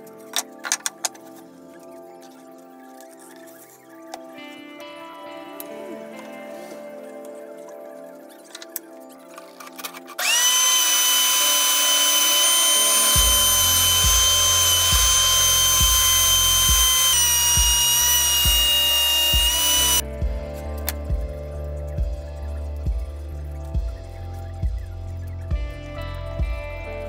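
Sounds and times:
thickness planer whine: 0:10.2 - 0:20.0.

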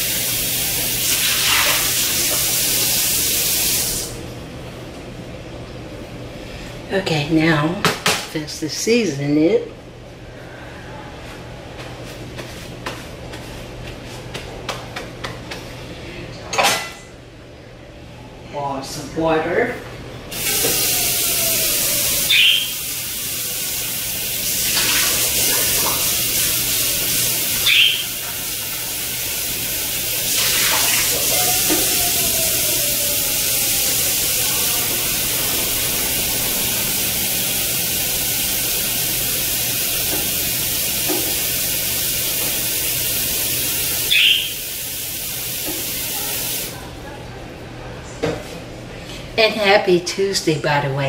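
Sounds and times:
faucet running: 0:00.0 - 0:04.2, 0:20.3 - 0:46.8
water splashes: 0:24.6 - 0:26.2.

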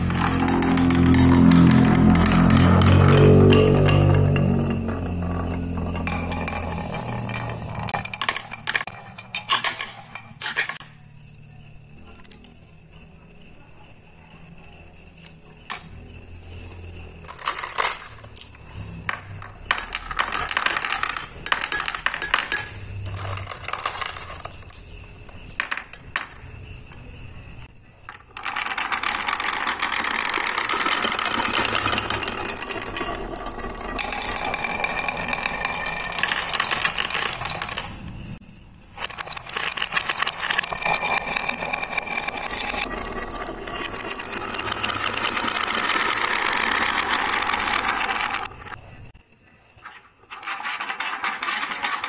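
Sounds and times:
balls clattering down wooden marble run: 0:00.0 - 0:10.9, 0:17.2 - 0:26.6, 0:28.1 - 0:38.1, 0:39.0 - 0:48.8, 0:50.4 - 0:52.0.

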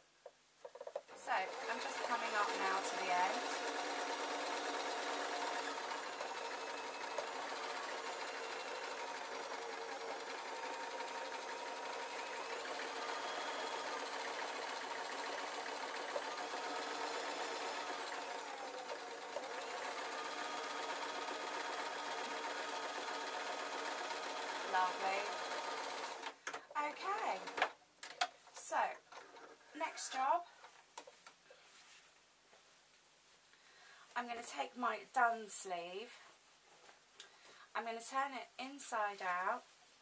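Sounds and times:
electric sewing machine running: 0:01.1 - 0:26.4, 0:27.2 - 0:27.6.

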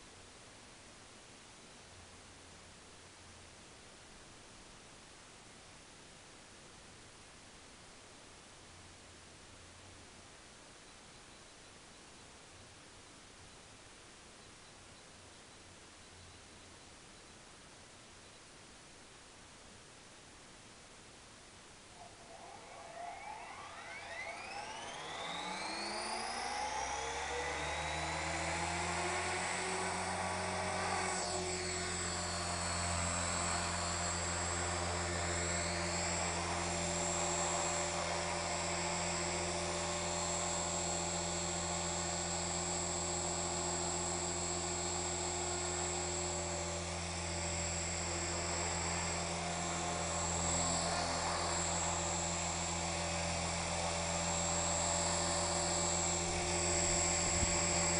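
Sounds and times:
rc helicopter motor and rotor whine: 0:22.2 - 0:57.9.

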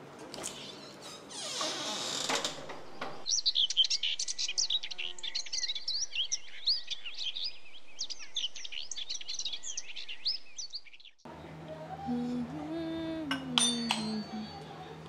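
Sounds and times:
door scraping open: 0:00.4 - 0:03.3
songbirds chirping: 0:00.5 - 0:15.0.

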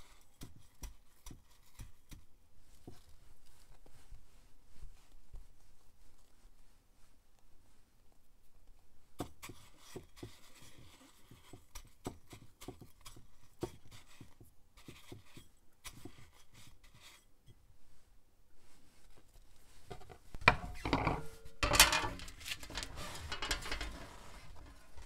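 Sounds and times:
seeds rustling on ceramic dish: 0:21.2 - 0:25.0.

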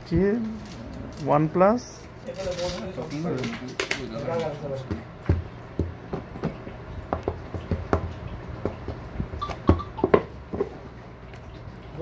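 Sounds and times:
box knocking on glass: 0:04.9 - 0:10.8.

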